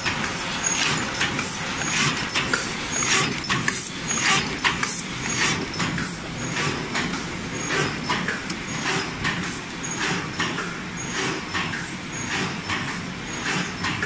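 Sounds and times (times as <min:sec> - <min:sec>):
machine running hum: 0:00.0 - 0:14.0.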